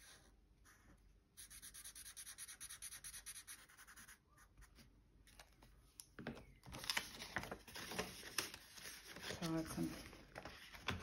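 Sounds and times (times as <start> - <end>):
pen scribbling on paper: 1.4 - 4.5
paper rustling: 6.6 - 11.0.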